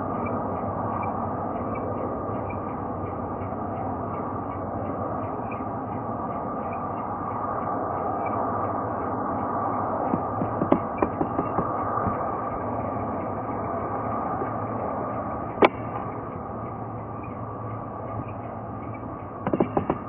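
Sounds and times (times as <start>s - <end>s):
jet engines idling hum: 0.0s - 20.0s.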